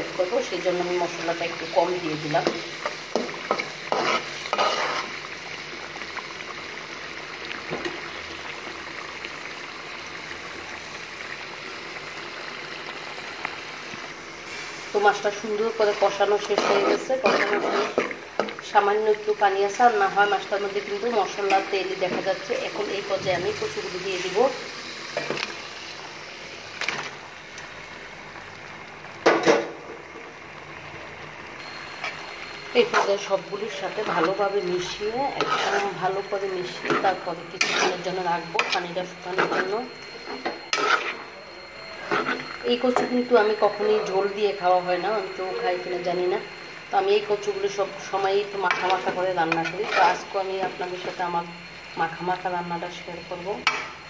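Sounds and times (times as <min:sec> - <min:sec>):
bubbling sizzle in a pot: 0:00.0 - 0:54.0
spoon scraping a pot: 0:03.1 - 0:05.2, 0:16.4 - 0:18.2, 0:35.3 - 0:36.0, 0:36.8 - 0:39.8, 0:40.6 - 0:41.3, 0:42.0 - 0:42.5, 0:48.7 - 0:50.3.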